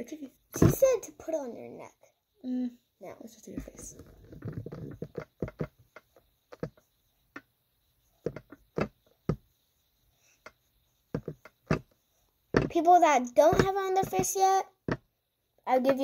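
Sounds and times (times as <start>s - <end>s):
rubbing rustle: 3.4s - 14.6s
sponge dabbing taps: 3.4s - 15.1s, 15.7s - 16.0s.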